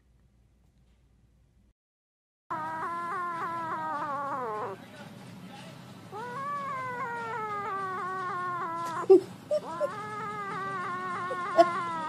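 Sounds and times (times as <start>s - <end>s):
kitten crying: 2.5s - 4.8s, 6.1s - 12.0s.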